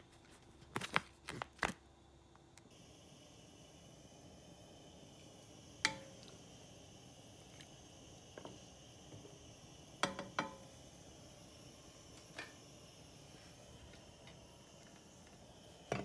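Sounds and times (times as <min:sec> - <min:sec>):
faint steady hiss: 0:00.0 - 0:16.0
spatula knocking on frying pan: 0:10.0 - 0:10.7.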